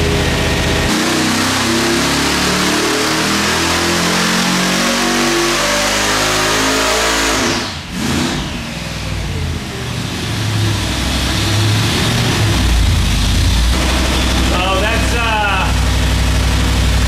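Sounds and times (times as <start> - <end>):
engine roaring under full load: 0.0 - 17.0
engine rumbling at low revs: 7.6 - 17.0.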